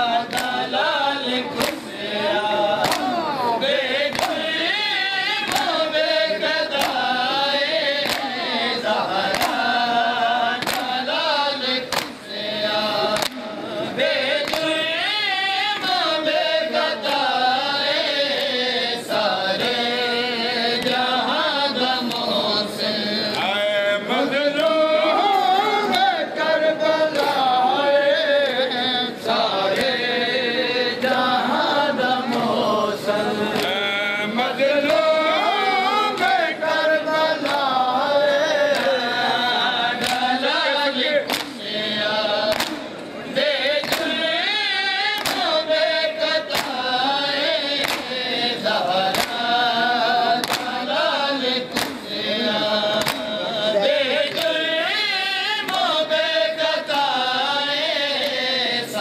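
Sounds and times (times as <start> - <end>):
male voices chanting a lament: 0.0 - 59.0
hands slapping chests: 0.3 - 0.6, 1.6 - 1.9, 2.8 - 3.2, 4.0 - 4.5, 5.4 - 5.9, 6.7 - 7.1, 8.0 - 8.4, 9.2 - 9.8, 10.5 - 11.0, 11.9 - 12.2, 13.1 - 13.5, 14.4 - 14.8, 33.5 - 33.8, 36.1 - 36.5, 37.4 - 37.7, 40.0 - 40.3, 41.2 - 41.6, 42.5 - 42.9, 43.8 - 44.2, 45.1 - 45.6, 46.5 - 46.9, 47.8 - 48.2, 49.0 - 49.5, 50.4 - 50.8, 51.7 - 52.1, 52.9 - 53.4.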